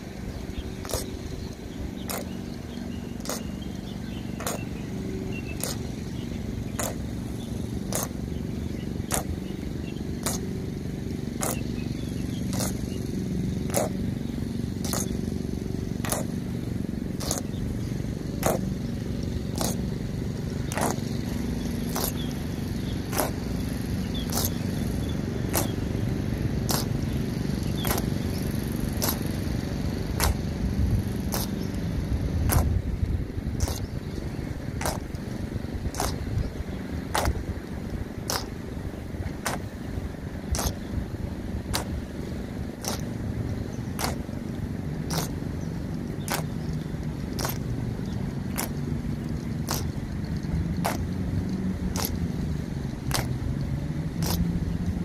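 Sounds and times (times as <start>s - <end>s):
low background rumble: 0.0s - 55.0s
boots striking pavement in step: 32.4s - 32.8s, 34.8s - 35.2s, 35.9s - 36.3s, 44.0s - 44.4s.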